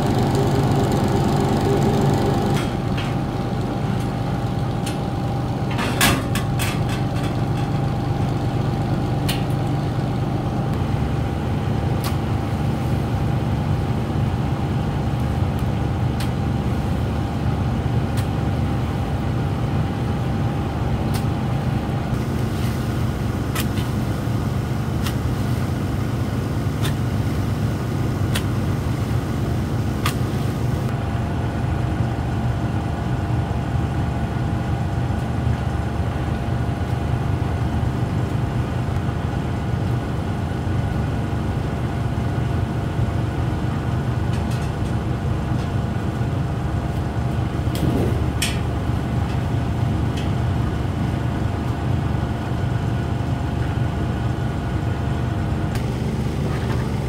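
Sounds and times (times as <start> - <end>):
machine droning: 0.0 - 32.7, 55.5 - 57.0.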